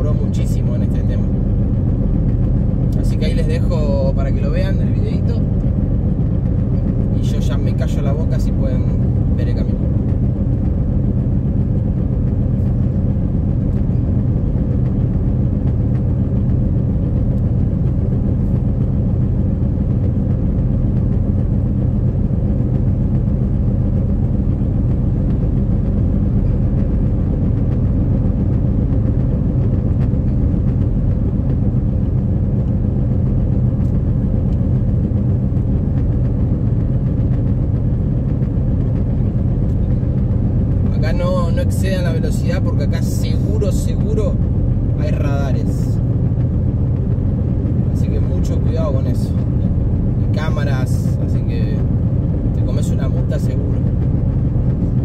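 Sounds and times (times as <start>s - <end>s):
car engine hum: 0.0s - 55.0s.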